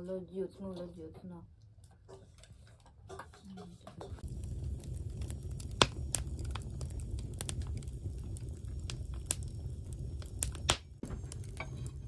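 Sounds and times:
low rumble of flames: 0:03.9 - 0:12.0
burning logs crackling and popping: 0:04.2 - 0:12.0.

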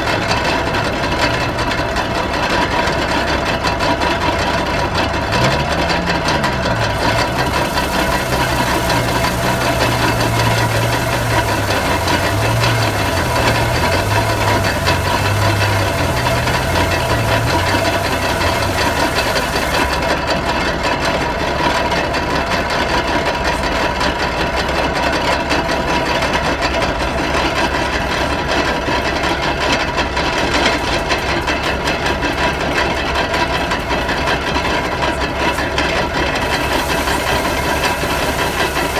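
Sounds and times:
stationary engine running: 0:00.0 - 0:38.9
threshing machine drum working: 0:00.4 - 0:20.3, 0:36.2 - 0:38.9.

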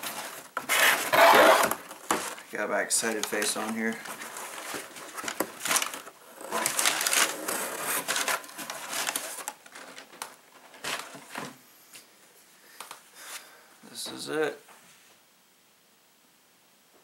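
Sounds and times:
packing paper rustling: 0:00.0 - 0:11.6.

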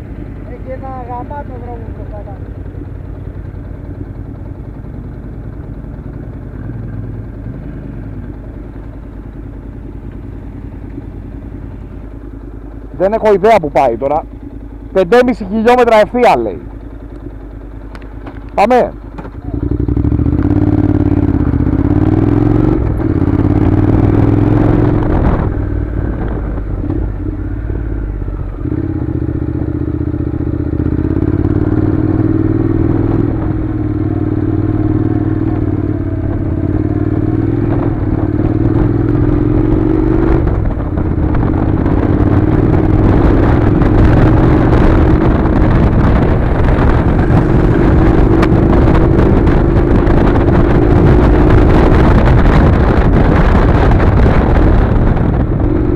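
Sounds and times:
motorcycle engine running: 0:00.0 - 0:55.9
rush of noise: 0:30.7 - 0:55.9.

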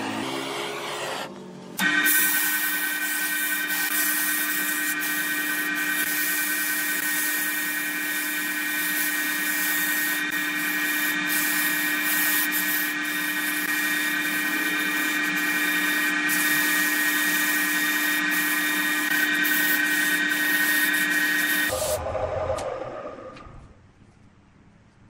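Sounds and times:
sandpaper rubbing hiss: 0:02.0 - 0:21.8.

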